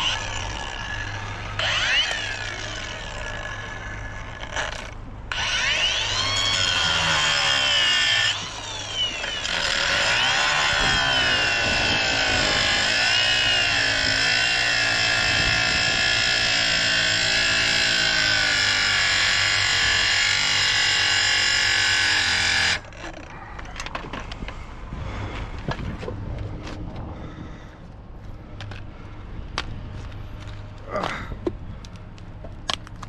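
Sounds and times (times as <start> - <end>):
power cutting tool cutting metal: 0.0 - 23.2.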